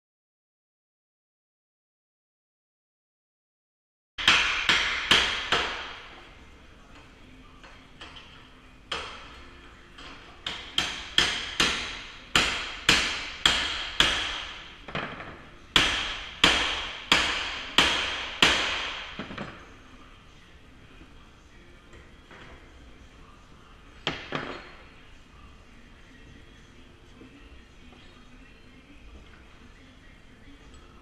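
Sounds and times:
hammer striking steel wedge: 0:04.2 - 0:06.0, 0:10.4 - 0:14.6, 0:15.8 - 0:19.3.

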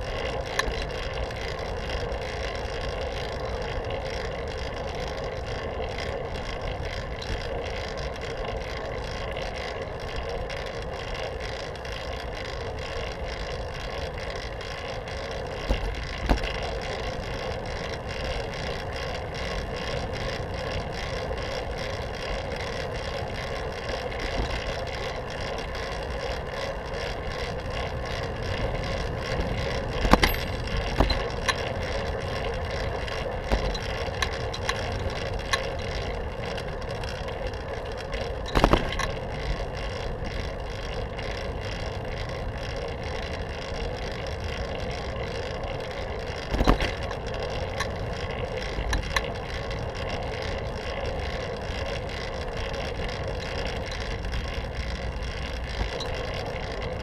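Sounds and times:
bicycle rattles: 0:00.0 - 0:57.0
bicycle tyre and drivetrain hum: 0:00.0 - 0:57.0
bicycle knocks: 0:00.1 - 0:02.1, 0:12.9 - 0:18.6, 0:19.4 - 0:26.3, 0:27.0 - 0:37.4, 0:38.0 - 0:41.0, 0:46.2 - 0:50.2.

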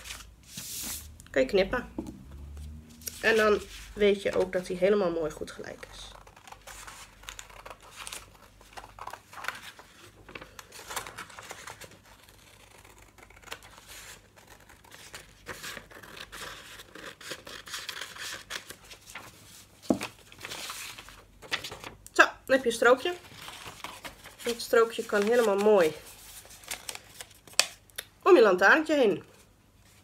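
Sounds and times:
paper rustling: 0:03.0 - 0:04.9, 0:05.5 - 0:22.0, 0:23.1 - 0:27.8.

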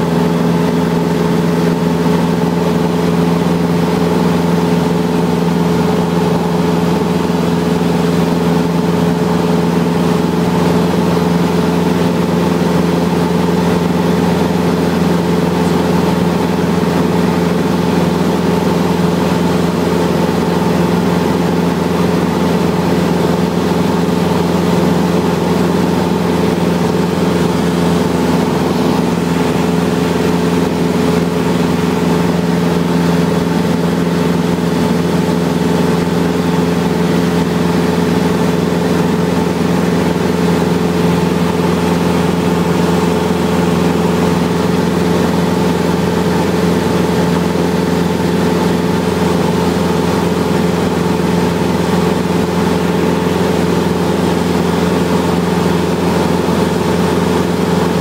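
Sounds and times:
aircraft engine drone: 0:00.0 - 0:58.0.

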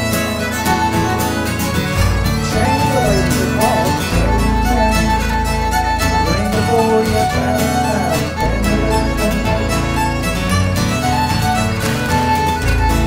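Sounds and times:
bowed nyckelharpa melody: 0:00.0 - 0:13.0
strummed baritone guitar: 0:00.0 - 0:13.0.

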